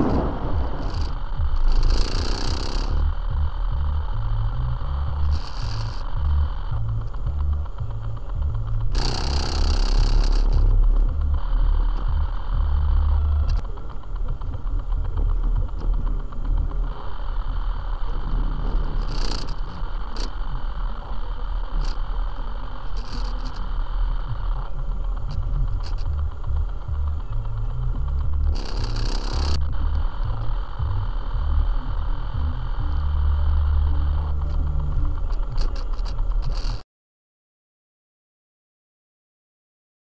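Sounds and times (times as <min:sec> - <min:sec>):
loud rushing hiss: 0:00.0 - 0:10.7, 0:15.6 - 0:36.8
rattles: 0:00.0 - 0:12.2, 0:17.9 - 0:20.5, 0:22.8 - 0:23.7, 0:24.5 - 0:30.7
engine and road rumble: 0:00.0 - 0:36.8
sharp ticks: 0:00.0 - 0:36.8.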